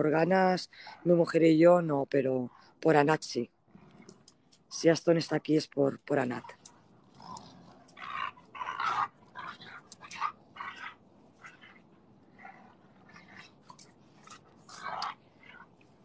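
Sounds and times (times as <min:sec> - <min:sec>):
dogs making play noises: 0:06.5 - 0:16.0.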